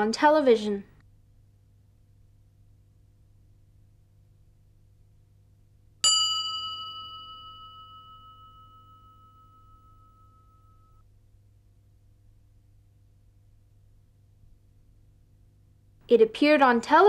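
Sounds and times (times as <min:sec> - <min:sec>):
bell-like chime ringing: 0:06.0 - 0:11.0.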